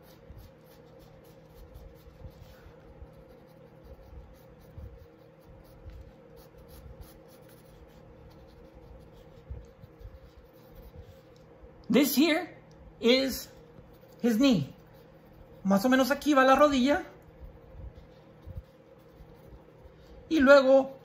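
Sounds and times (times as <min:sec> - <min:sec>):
pencil sketching on paper: 0:00.0 - 0:11.3, 0:13.8 - 0:21.0.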